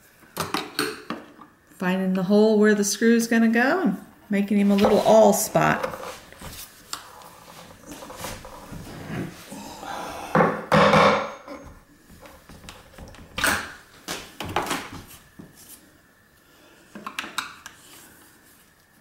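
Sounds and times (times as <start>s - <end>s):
awl scraping and creaking in wood: 4.6s - 9.7s.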